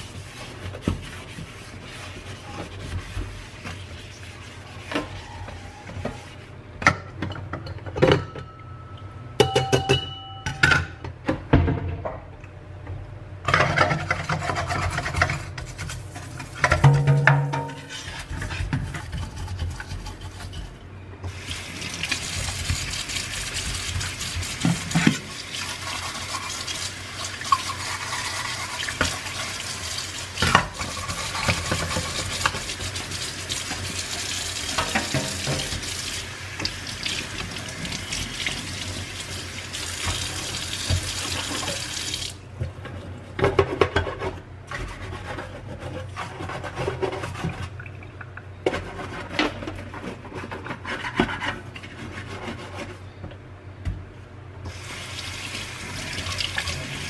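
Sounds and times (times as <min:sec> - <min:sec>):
bottle brush scrubbing: 0:00.0 - 0:06.4.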